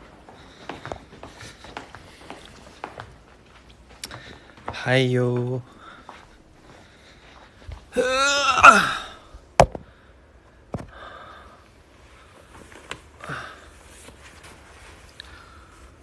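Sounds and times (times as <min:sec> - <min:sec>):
man sighing: 0:07.9 - 0:09.3.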